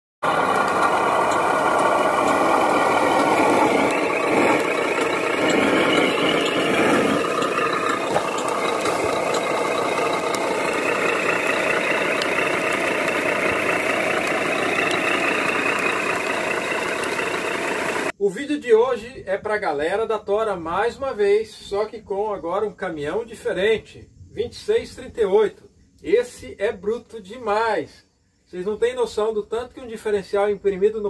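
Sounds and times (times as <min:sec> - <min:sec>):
toy truck running with rattling: 0:00.2 - 0:18.1.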